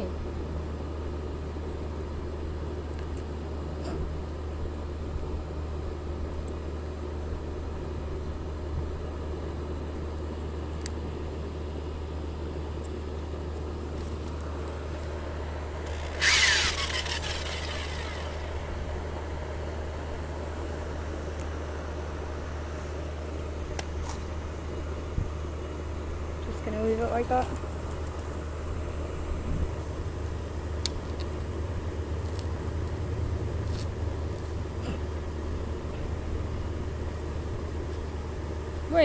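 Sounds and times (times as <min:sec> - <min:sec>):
small electric motor humming: 0:14.6 - 0:19.2.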